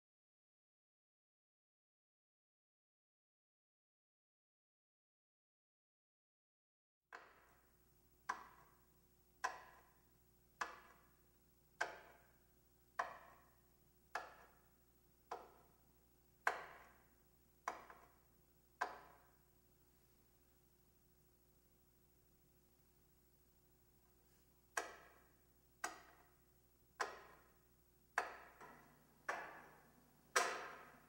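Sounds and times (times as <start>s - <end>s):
echoing knocks: 28.2s - 31.0s.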